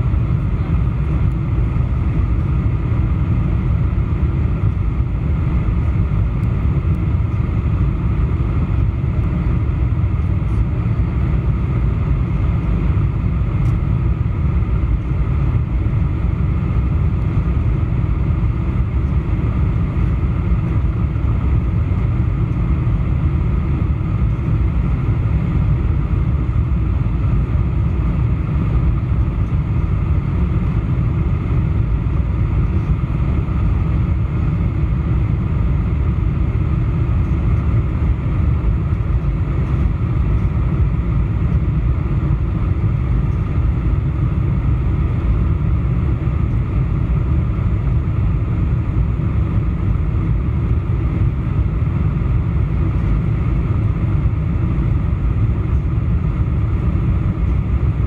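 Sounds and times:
jet engines rumbling: 0.0 - 58.0.

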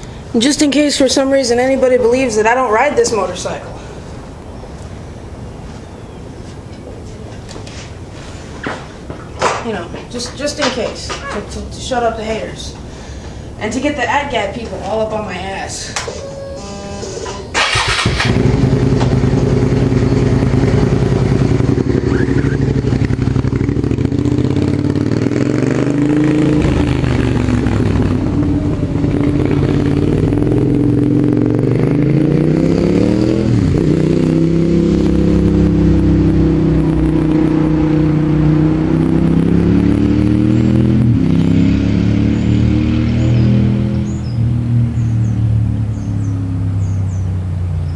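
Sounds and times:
motorcycle engine revving: 16.2 - 47.9.

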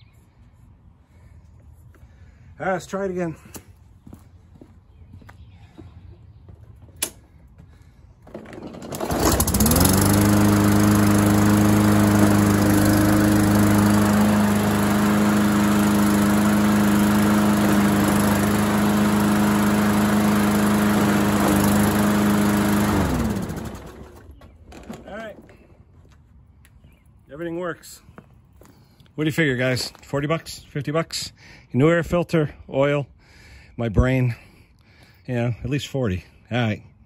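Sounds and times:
pull starter cord: 8.2 - 10.8
lawn mower engine running: 8.2 - 25.6.

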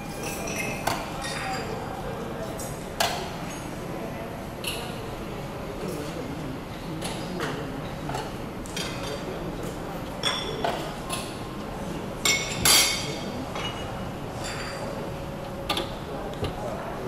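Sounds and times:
metal utensils clinking on dishes: 0.0 - 1.8, 12.2 - 15.0.

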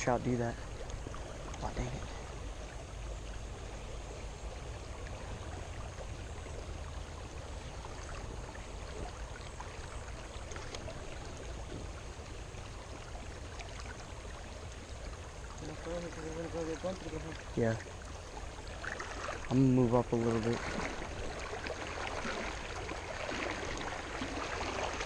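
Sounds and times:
river rushing over gravel: 18.4 - 25.0.

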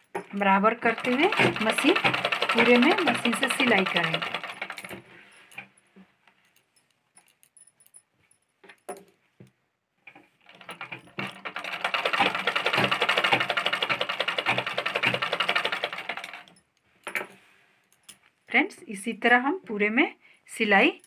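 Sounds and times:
sewing machine rattling: 0.5 - 5.1, 10.4 - 16.6.

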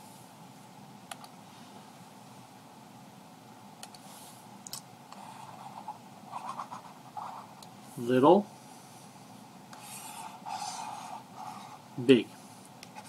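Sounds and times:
low electrical hum: 0.0 - 13.0
computer mouse clicks: 1.1 - 1.4.

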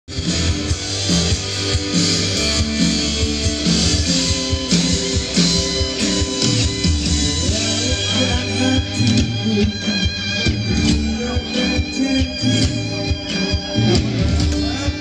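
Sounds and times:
bass line: 0.0 - 15.0
guitar chords: 0.1 - 15.0.

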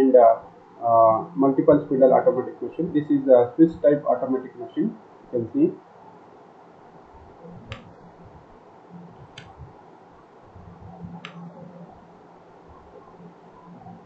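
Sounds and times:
low background rumble: 0.0 - 14.0
computer mouse clicks: 11.2 - 11.6.

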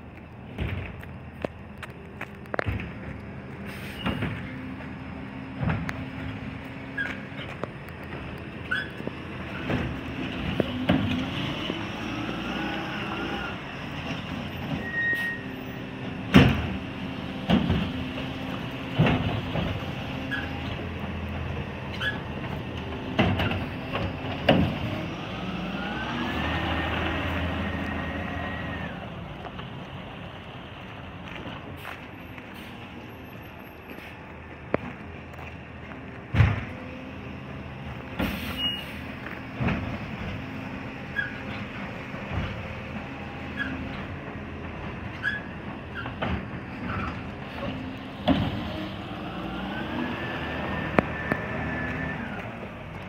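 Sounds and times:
carts knocking and banging: 16.1 - 21.2, 39.2 - 40.6.

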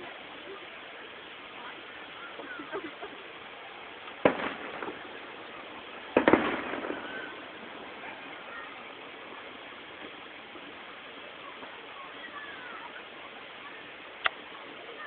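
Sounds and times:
fireworks bursting: 0.0 - 15.0
small firework pops: 4.0 - 10.8, 14.2 - 14.5.

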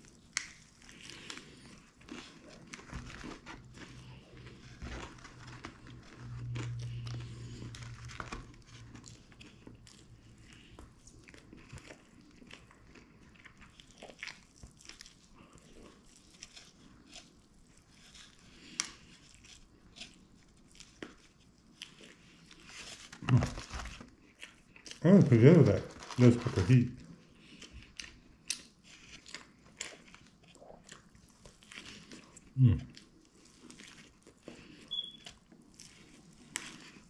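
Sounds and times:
biting and chewing crispy food: 0.0 - 37.0
low hum: 5.0 - 10.0.

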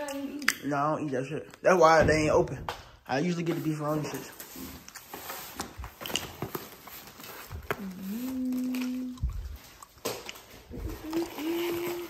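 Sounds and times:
person humming a held note: 7.8 - 9.2, 10.9 - 12.0.

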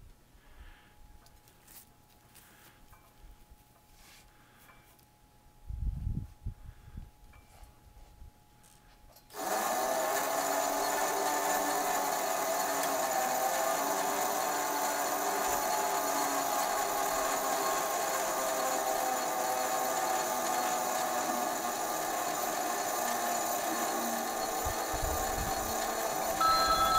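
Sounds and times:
crane mechanical whine: 9.3 - 26.9.

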